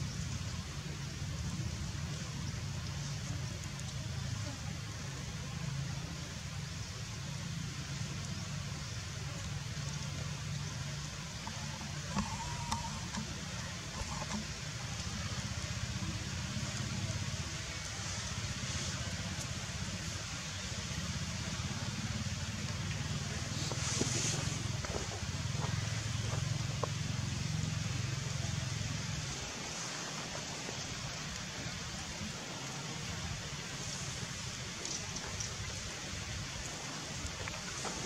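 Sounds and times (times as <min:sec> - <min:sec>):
even hiss: 0:00.0 - 0:38.0
faint clicks: 0:02.8 - 0:04.0, 0:08.2 - 0:18.0, 0:34.7 - 0:35.8.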